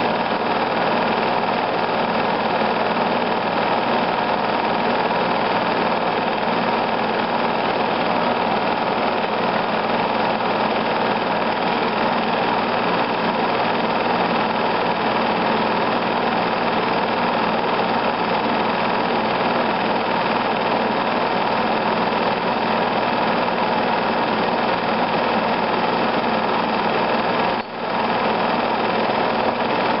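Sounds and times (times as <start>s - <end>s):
film projector whirring: 0.0s - 30.0s.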